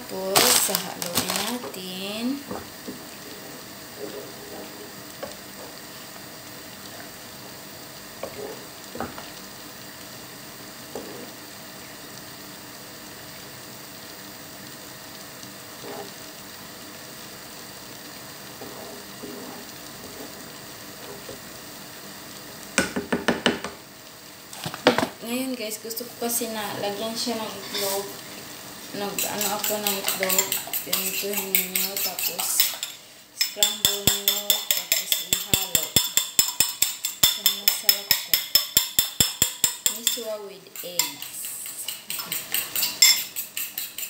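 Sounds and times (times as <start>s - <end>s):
soup simmering hiss: 0.0s - 44.0s
wooden spoon stirring in pot: 2.6s - 6.0s, 18.3s - 21.5s, 26.8s - 28.2s, 28.8s - 44.0s
spoon knocking on pot: 33.4s - 40.2s, 41.0s - 44.0s.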